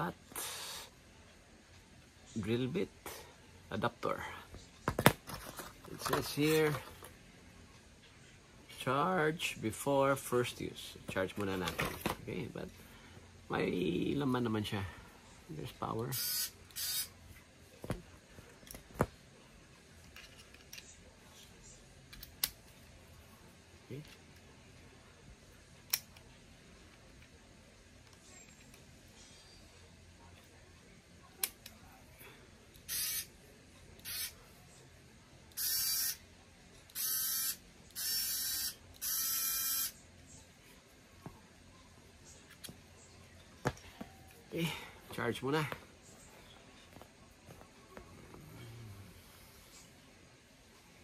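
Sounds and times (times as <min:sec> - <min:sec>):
cordless screwdriver motor whirring: 0:16.2 - 0:17.1, 0:34.0 - 0:34.3, 0:35.6 - 0:36.2, 0:37.0 - 0:39.9.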